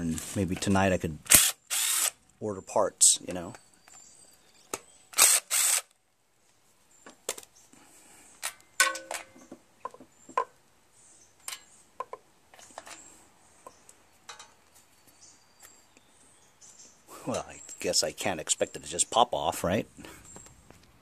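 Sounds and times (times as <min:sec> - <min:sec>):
cordless drill bursts: 0:01.3 - 0:02.2, 0:05.2 - 0:05.9
metal bolts clinking on wood: 0:08.5 - 0:09.4, 0:14.3 - 0:14.6.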